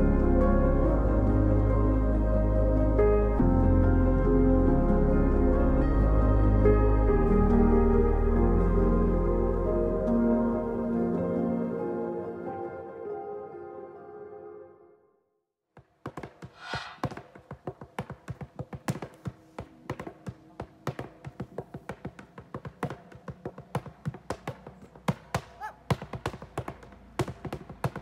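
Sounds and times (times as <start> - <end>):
dance shoes tapping on a board: 15.8 - 28.0.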